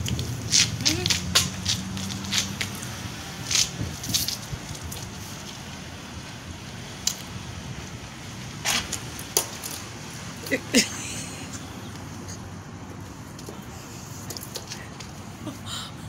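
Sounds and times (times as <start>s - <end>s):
outdoor background hum: 0.0s - 16.0s.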